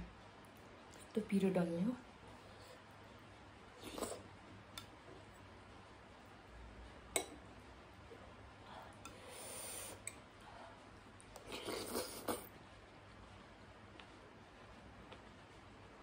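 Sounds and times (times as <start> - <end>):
slurping: 3.8 - 4.3, 11.4 - 12.5.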